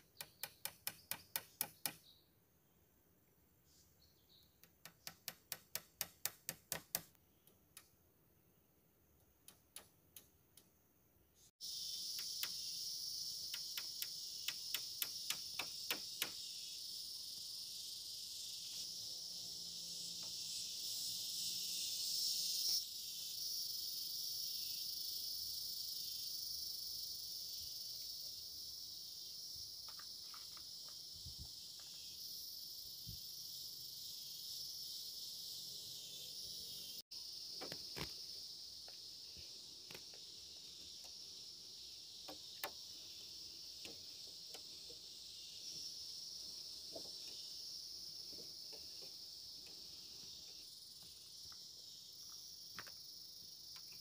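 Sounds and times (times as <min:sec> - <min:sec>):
insects chorus: 0:11.4 - 0:54.0.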